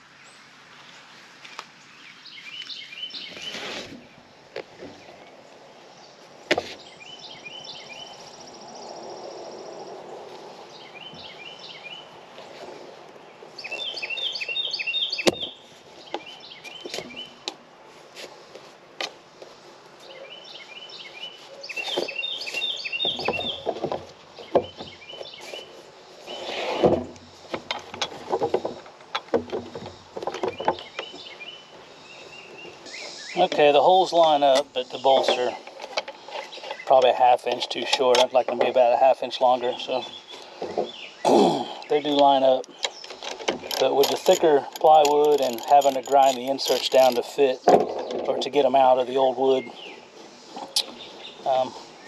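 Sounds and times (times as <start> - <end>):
bird chirping: 0.1 - 17.6, 19.4 - 52.0
rustling: 2.4 - 8.8, 9.8 - 41.2
wood knocking against metal: 23.0 - 25.3, 26.8 - 31.4.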